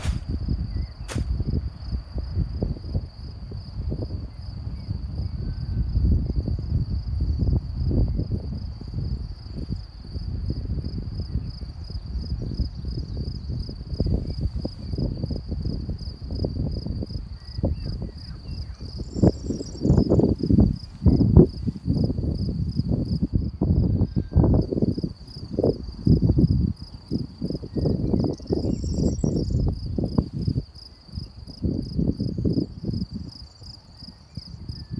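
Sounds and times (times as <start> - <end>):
insects trilling: 0.0 - 34.9
wind buffeting microphone: 0.0 - 34.9.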